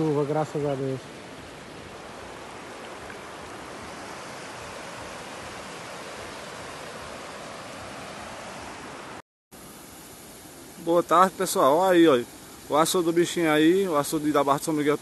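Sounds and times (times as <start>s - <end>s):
floodwater rushing: 0.0s - 9.2s.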